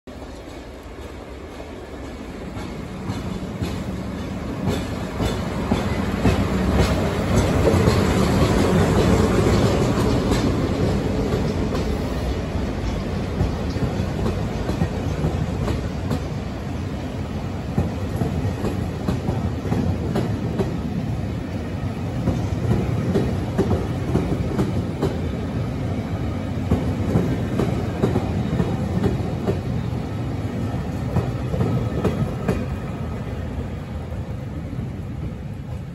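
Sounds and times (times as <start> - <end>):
train passing rumble: 0.1 - 35.9
wheels clicking over rail joints: 0.2 - 12.1.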